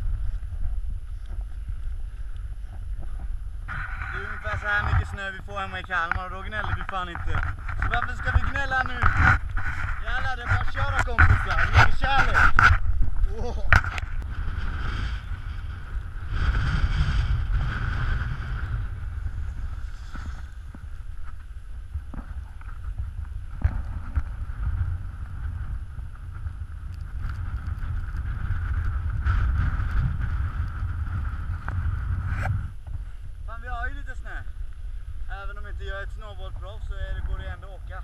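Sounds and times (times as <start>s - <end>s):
snowboards sliding over snow: 0.0s - 32.7s
wind buffeting microphone: 0.0s - 38.0s.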